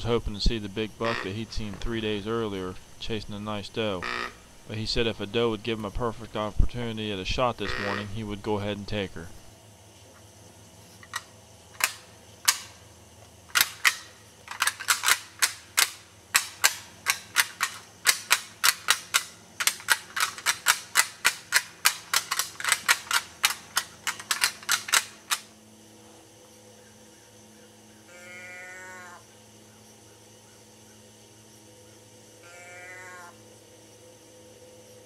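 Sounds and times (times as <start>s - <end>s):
deer rattling antlers clacking: 7.6s - 8.1s, 13.5s - 25.5s.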